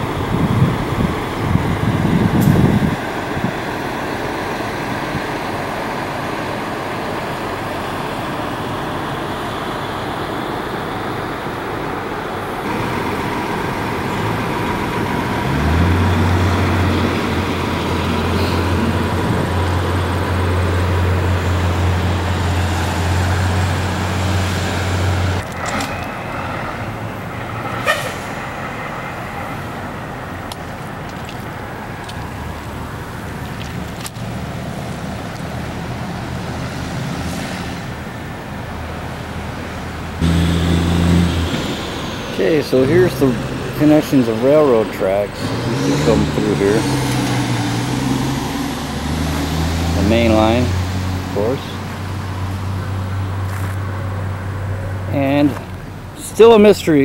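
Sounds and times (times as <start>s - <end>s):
traffic rumble: 0.0s - 57.0s
low steady drone: 40.1s - 46.8s.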